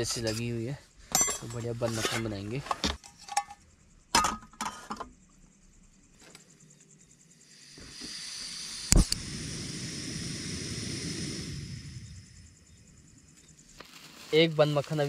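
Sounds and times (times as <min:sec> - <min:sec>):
gas hissing: 0:07.4 - 0:14.5
burner flame roaring: 0:07.5 - 0:13.4.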